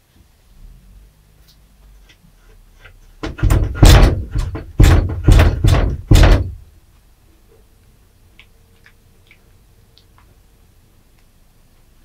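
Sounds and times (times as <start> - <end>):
door banging and rattling: 3.2 - 6.7.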